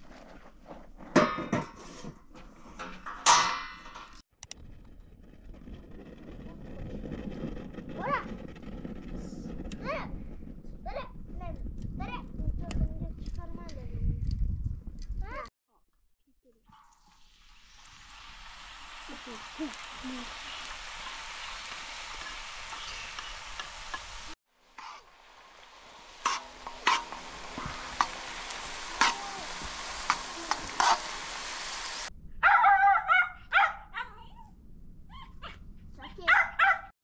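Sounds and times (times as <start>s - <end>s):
food sizzling in a pan: 16.7s - 32.1s
utensil tapping and scraping pan: 26.2s - 28.3s, 29.0s - 31.1s
dog whining and yipping: 35.1s - 35.6s.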